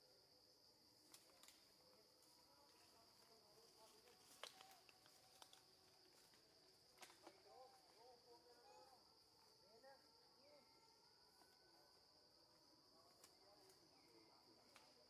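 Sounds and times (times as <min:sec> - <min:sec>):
faint sharp clicks: 0:04.2 - 0:05.7.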